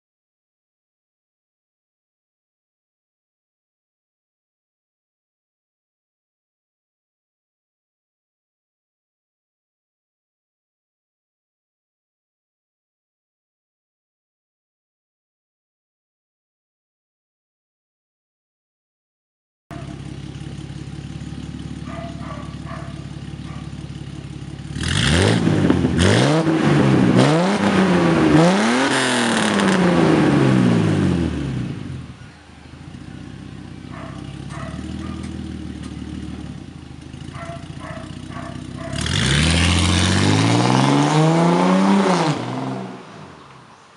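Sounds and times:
car engine idling: 19.7 - 26.0, 31.6 - 39.4
car accelerating away: 19.8 - 43.7
engine revving in blips: 21.5 - 32.2, 33.8 - 43.3.

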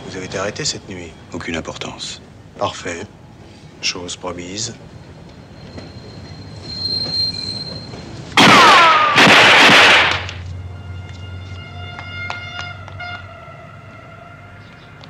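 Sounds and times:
train rushing past: 0.0 - 9.1
metallic wheel squeal: 5.4 - 8.2.

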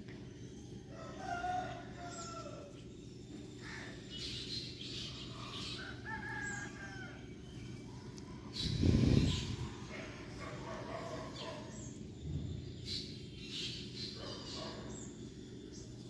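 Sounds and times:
steady low hum: 0.0 - 16.0
rooster crowing: 0.9 - 2.8, 5.6 - 7.3.

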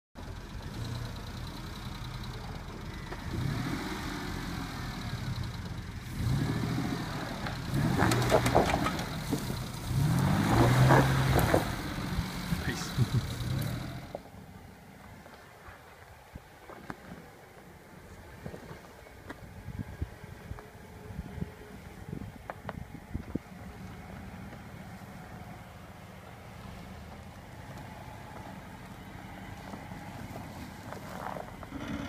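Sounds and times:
suv engine revving: 0.5 - 14.3, 23.2 - 32.0.

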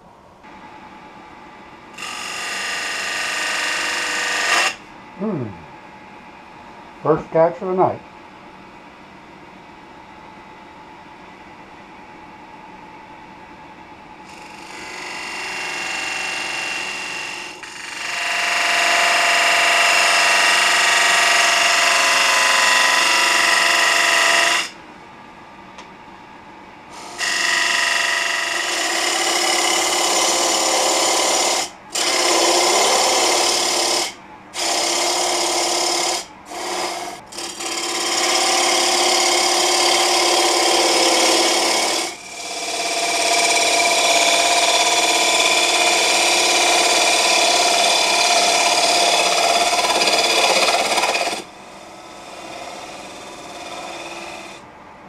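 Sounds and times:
gouge cutting wood on a lathe: 2.0 - 4.8, 14.3 - 24.7, 27.0 - 54.6
lathe running quietly: 2.0 - 5.9, 14.0 - 24.8, 26.9 - 54.6.

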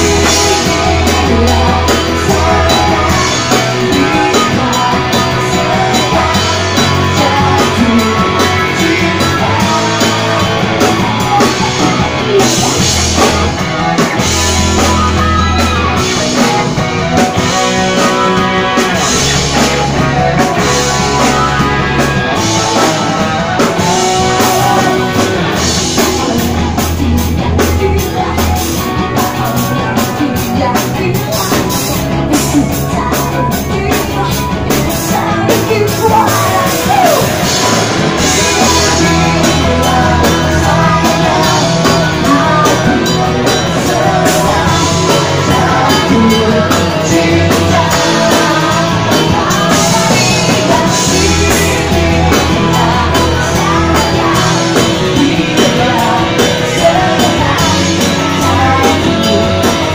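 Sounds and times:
rock band playing: 0.0 - 59.9
woman singing into microphone: 23.8 - 37.6, 38.2 - 59.9.

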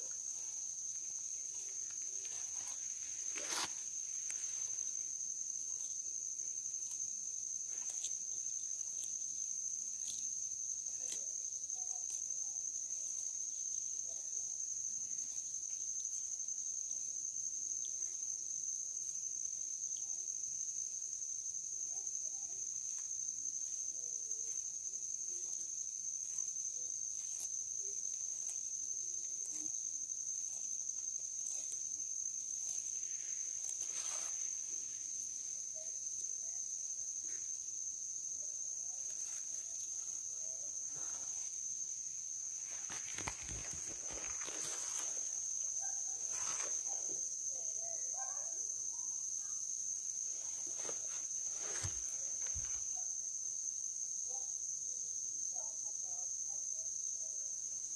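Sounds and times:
insects chirring: 0.0 - 57.9
tortoise chewing with crunching clicks: 5.5 - 14.0, 25.4 - 33.9.

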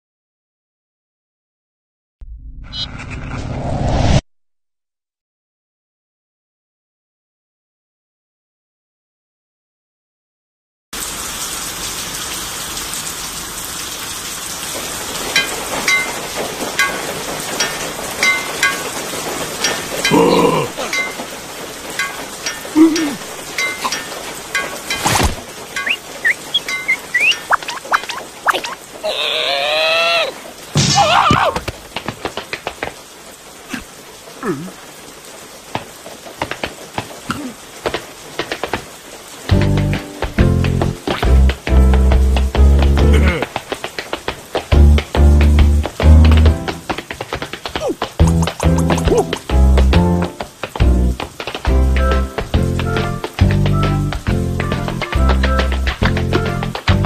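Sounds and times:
sharp water drips: 11.0 - 57.0
steady rain falling: 11.0 - 57.0
ringing water drop plinks: 18.2 - 18.9, 22.0 - 25.2, 25.8 - 28.8.

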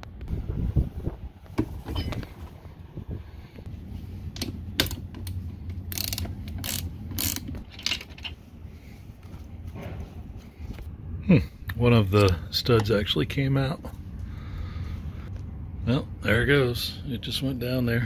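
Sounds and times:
ratchet wrench clicking: 4.4 - 8.0.

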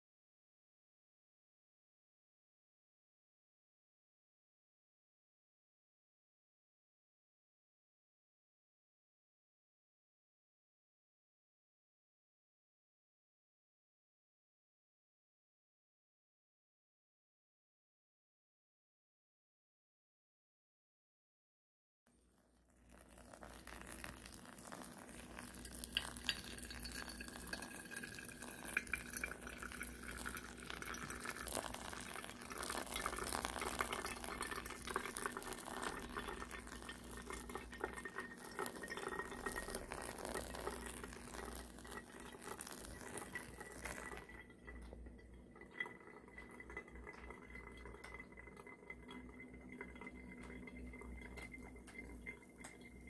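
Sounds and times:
water trickling onto coffee: 22.1 - 53.0.

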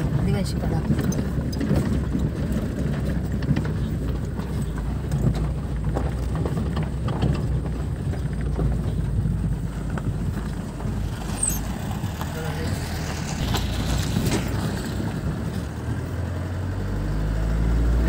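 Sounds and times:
small knocks and rattles: 0.0 - 12.3
vehicle engine and road rumble: 0.0 - 18.0.

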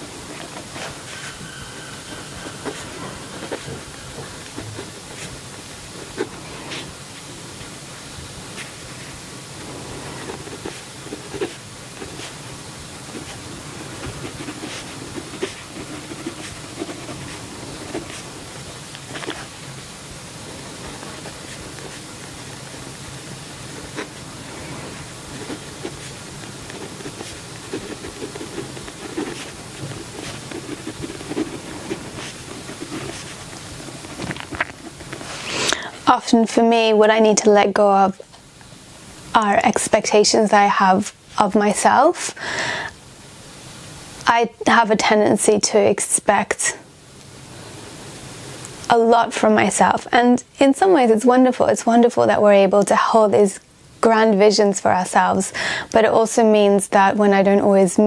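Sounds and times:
steady hiss: 0.0 - 58.0
pen scratching on paper: 0.3 - 7.0, 9.6 - 12.4, 13.0 - 18.5, 23.7 - 35.3.

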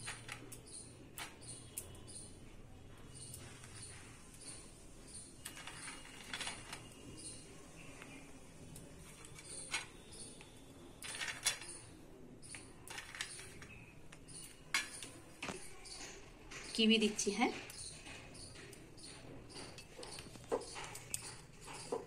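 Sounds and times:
nuts clinking on steel plate: 0.0 - 2.3, 5.4 - 8.0, 8.7 - 16.2.

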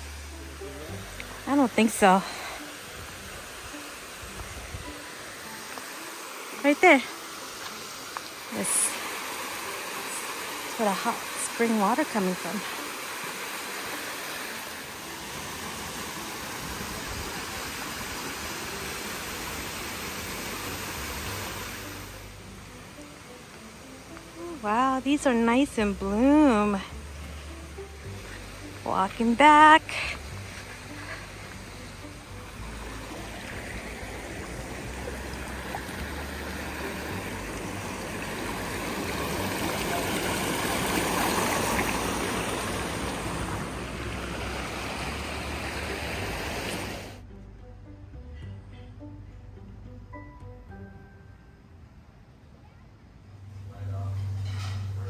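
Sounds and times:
stream running over stones: 0.0 - 47.2
water splashing over rocks: 0.9 - 22.4, 28.2 - 47.2.

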